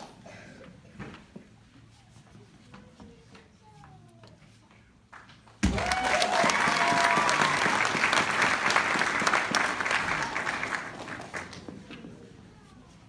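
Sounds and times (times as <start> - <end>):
people cheering: 5.6 - 11.6
audience applauding: 5.7 - 11.7.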